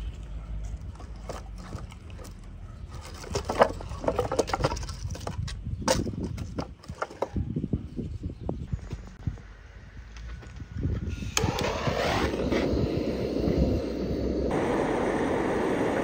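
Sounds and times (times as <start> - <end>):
wooden planks clattering: 0.9 - 7.4.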